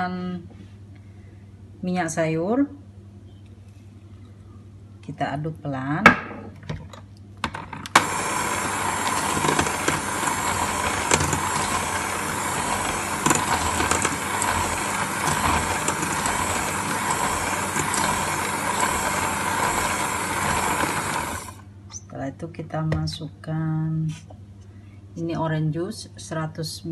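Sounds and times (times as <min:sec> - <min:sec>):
electric hand mixer whisking batter: 0:07.9 - 0:21.6.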